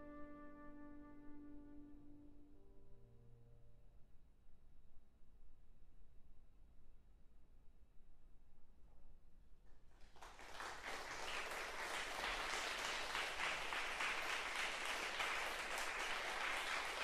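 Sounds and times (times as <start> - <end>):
audience applause: 10.0 - 17.0.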